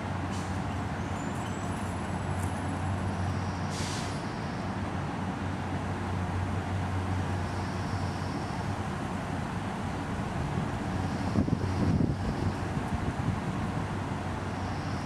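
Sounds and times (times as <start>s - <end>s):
short hiss: 3.7s - 4.3s.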